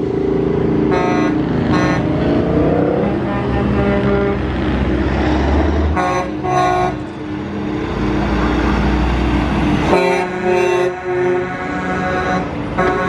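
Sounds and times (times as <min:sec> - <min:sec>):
passing diesel trucks droning: 0:00.0 - 0:13.0
truck air horn blasts: 0:00.9 - 0:02.1, 0:02.9 - 0:04.6, 0:05.9 - 0:07.0, 0:09.9 - 0:13.0.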